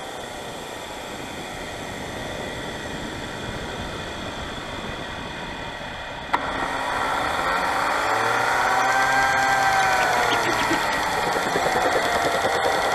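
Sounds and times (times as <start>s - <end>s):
turbine spooling up whine: 5.6s - 12.9s
turbine rushing hiss: 9.4s - 12.6s.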